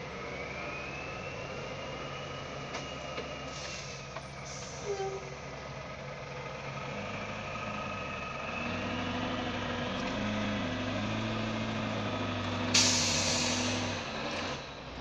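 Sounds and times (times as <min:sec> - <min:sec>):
heavy diesel engine working: 0:00.0 - 0:15.0
loud hiss: 0:12.7 - 0:13.8.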